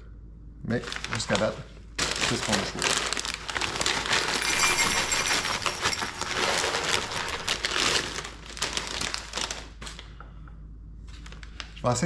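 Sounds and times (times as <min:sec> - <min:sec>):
plastic bag crinkling: 0:00.7 - 0:10.0
dry pasta rattling as poured: 0:02.0 - 0:09.5.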